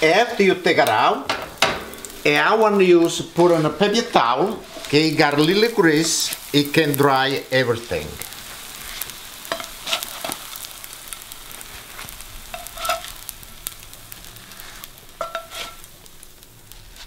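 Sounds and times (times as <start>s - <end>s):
pancakes sizzling in oil: 0.0s - 17.0s
spatula scraping a pan: 3.0s - 6.5s, 8.5s - 10.9s, 11.5s - 13.8s, 14.4s - 15.9s.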